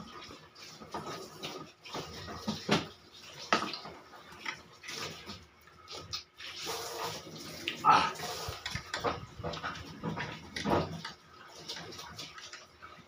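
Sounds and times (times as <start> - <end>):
person slurping and chewing: 7.5 - 8.8.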